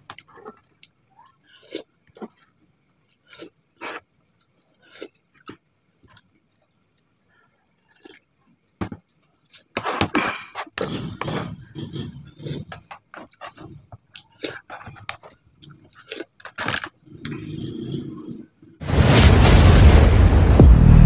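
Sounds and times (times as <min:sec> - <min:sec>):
person slurping soup: 0:04.7 - 0:05.5, 0:09.5 - 0:18.8.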